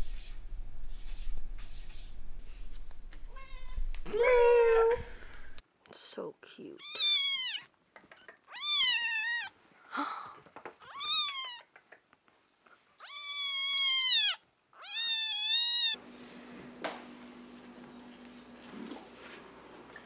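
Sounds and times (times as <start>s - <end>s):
cat meowing: 3.3s - 5.0s, 6.8s - 7.7s, 8.3s - 9.6s, 10.8s - 11.7s, 13.0s - 16.0s
quiet steady hum: 15.6s - 20.0s.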